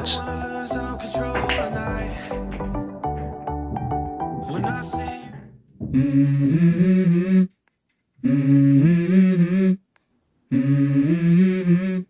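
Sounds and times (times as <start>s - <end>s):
low voice humming a melody: 5.9s - 7.5s, 8.2s - 9.8s, 10.5s - 12.0s.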